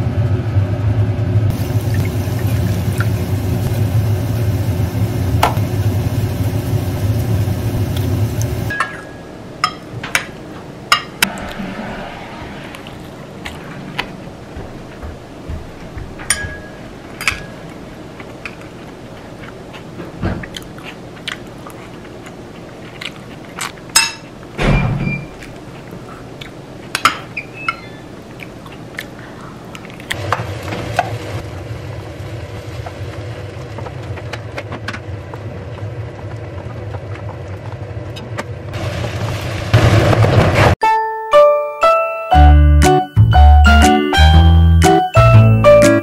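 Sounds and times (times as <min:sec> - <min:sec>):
steady low hum: 0:00.0 - 0:27.1.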